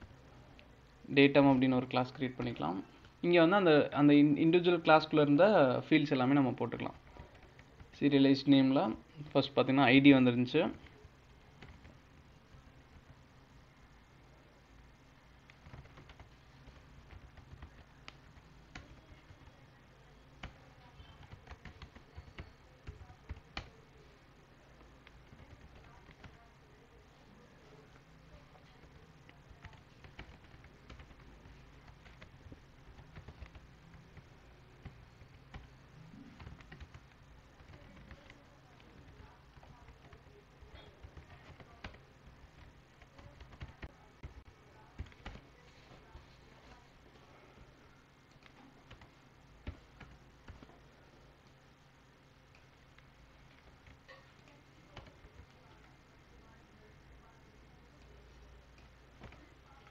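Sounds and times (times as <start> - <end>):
keyboard typing: 6.7 - 8.1, 10.5 - 13.3, 15.4 - 23.9, 24.8 - 26.6, 28.4 - 46.8, 48.3 - 51.6, 52.4 - 56.0, 58.7 - 59.9.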